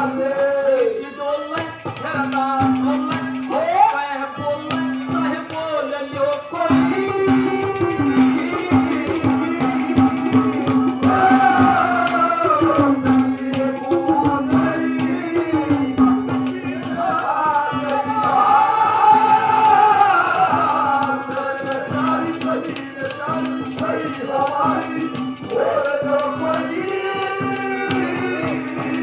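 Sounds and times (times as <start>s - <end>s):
hand drum strokes: 6.6s - 29.0s.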